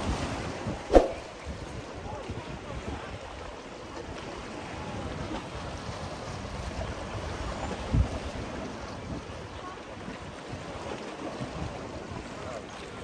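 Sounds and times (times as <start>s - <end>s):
wind buffeting microphone: 0.0s - 3.6s.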